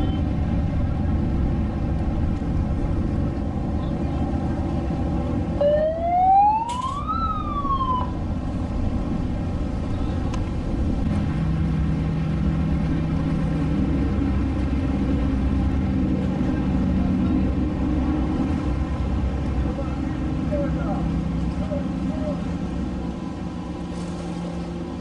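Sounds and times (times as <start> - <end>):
motorboat engines rumbling: 0.0 - 25.0
passing boat engine hum: 0.0 - 25.0
wind on water: 0.0 - 25.0
siren rising and falling: 5.6 - 8.2.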